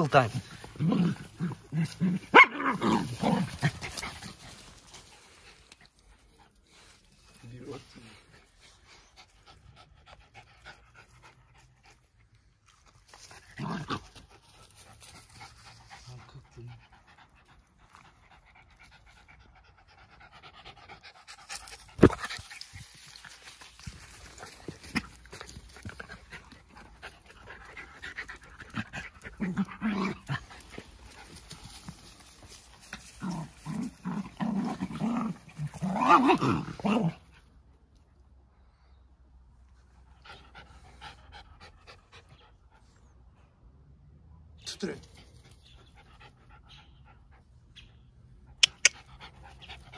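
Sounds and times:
dogs breathing and scuffling: 0:00.0 - 0:02.3, 0:03.1 - 0:37.5.

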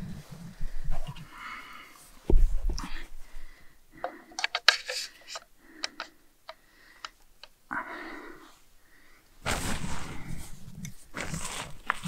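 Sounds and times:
camera gear clicks and knocks: 0:04.4 - 0:07.5
brief rustles: 0:09.4 - 0:12.0.

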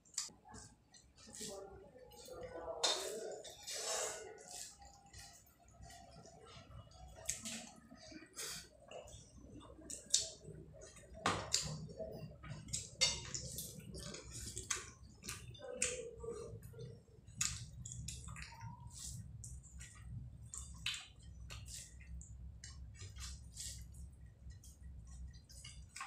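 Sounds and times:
wet chewing and lip smacks: 0:07.0 - 0:08.1, 0:09.8 - 0:26.0
hand squishing rice on a plate: 0:17.4 - 0:26.0.

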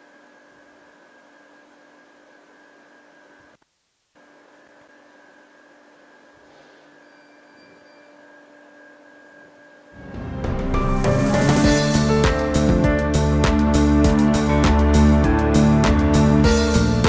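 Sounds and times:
music: 0:07.2 - 0:17.0.

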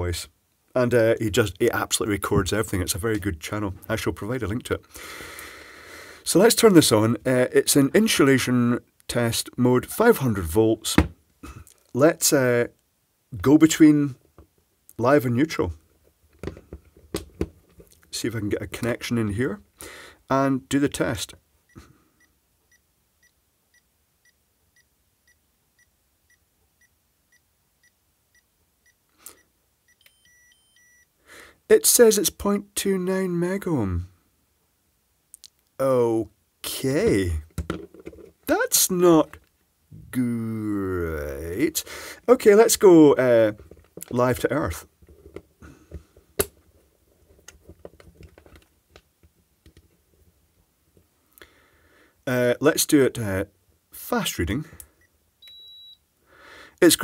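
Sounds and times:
faint tester beeping: 0:21.7 - 0:31.1, 0:55.0 - 0:56.0
stepped higher and lower beeps: 0:55.4 - 0:56.0.

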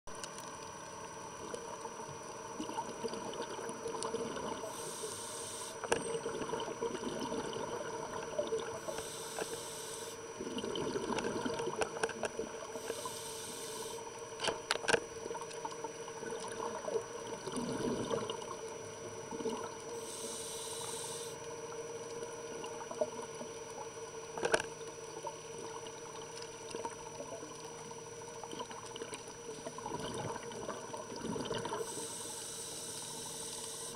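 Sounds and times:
steady underwater hum: 0:00.1 - 0:33.9
scuba inhalations hissing: 0:04.6 - 0:05.9, 0:08.8 - 0:10.2, 0:12.8 - 0:14.0, 0:20.0 - 0:21.4, 0:31.7 - 0:33.9
bubbling exhalations: 0:06.1 - 0:08.9, 0:10.4 - 0:11.8, 0:29.9 - 0:31.8.

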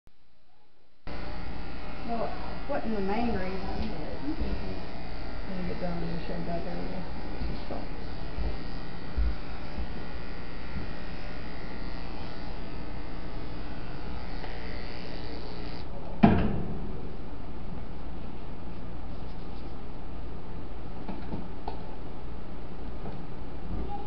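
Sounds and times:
electric hair clippers buzzing: 0:01.1 - 0:15.9.

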